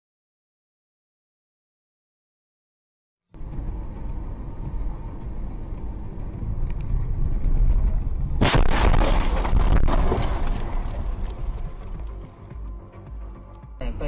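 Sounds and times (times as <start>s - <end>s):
car engine and road rumble: 3.3s - 14.0s
windscreen cracking: 6.5s - 12.3s
car crash impact and crunching: 8.4s - 12.3s.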